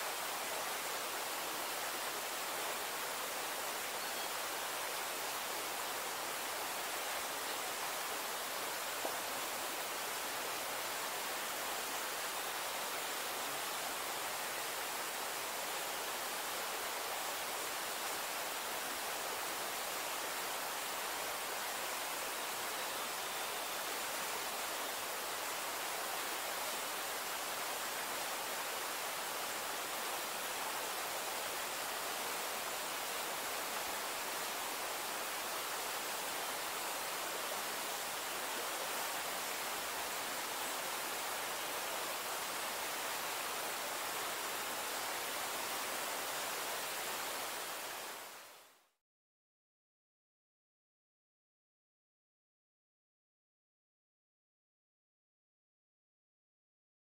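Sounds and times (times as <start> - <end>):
forest ambience hiss: 0.0 - 49.0.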